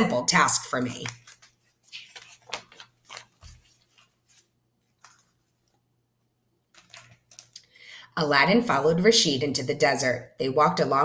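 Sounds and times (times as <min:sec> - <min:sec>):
paper page rustling: 0:00.4 - 0:05.8, 0:06.7 - 0:07.6.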